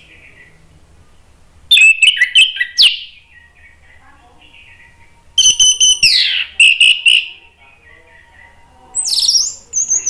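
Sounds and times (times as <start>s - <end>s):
thrush singing whistled phrases: 1.7s - 3.8s, 4.8s - 7.4s, 9.0s - 10.0s.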